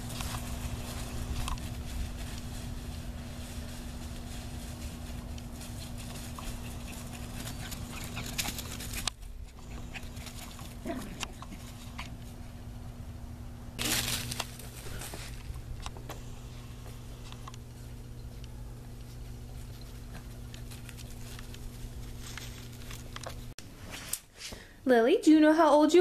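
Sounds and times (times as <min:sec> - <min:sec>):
loud rush of rustling: 0:00.0 - 0:09.1, 0:13.8 - 0:15.7
rustles and clicks in leaves: 0:00.0 - 0:12.6, 0:13.8 - 0:23.6.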